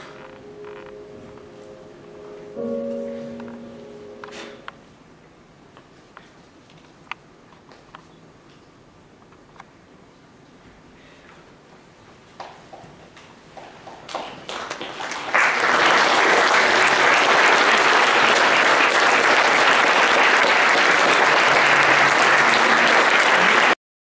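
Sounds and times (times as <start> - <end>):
audience applause: 13.8 - 23.8.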